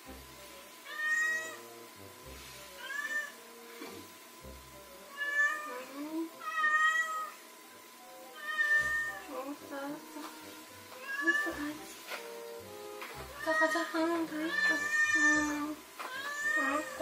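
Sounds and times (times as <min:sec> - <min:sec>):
cat meowing: 0:00.8 - 0:01.6, 0:02.8 - 0:03.4, 0:05.1 - 0:05.8, 0:06.4 - 0:07.4, 0:08.4 - 0:09.3, 0:11.0 - 0:11.8, 0:13.3 - 0:17.0.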